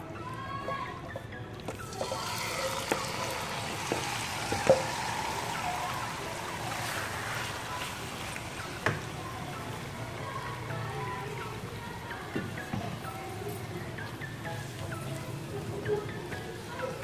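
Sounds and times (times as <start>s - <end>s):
chicken sizzling in a pan: 1.9s - 10.0s.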